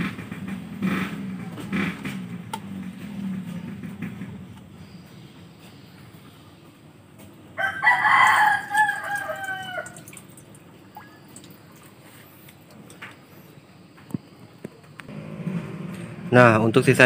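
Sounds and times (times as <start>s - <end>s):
rooster crowing: 7.5s - 10.1s.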